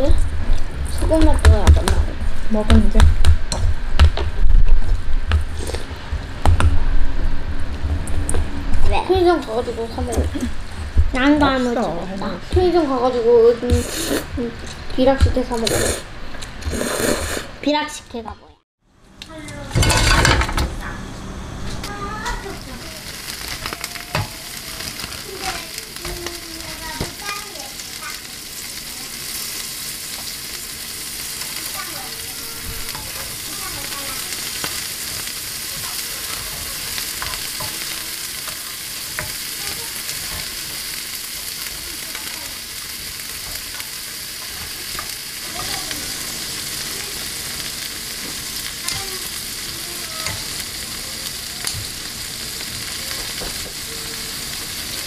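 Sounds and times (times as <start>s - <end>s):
shrimp sizzling in a frying pan: 22.1s - 55.0s.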